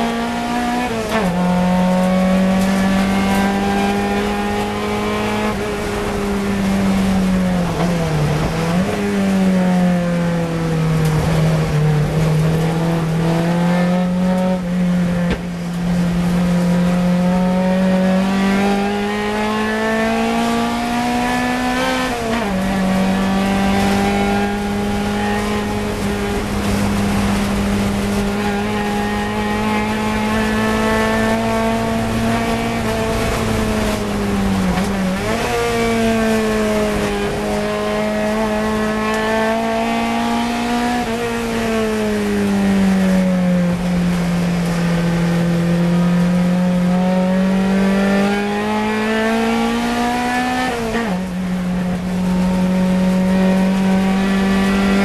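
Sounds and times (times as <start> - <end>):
race car engine at high revs: 0.0 - 55.0.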